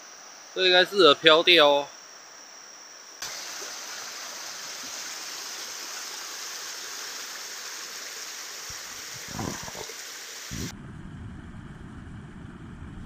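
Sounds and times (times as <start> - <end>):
stream rushing over rocks: 3.3 - 10.5.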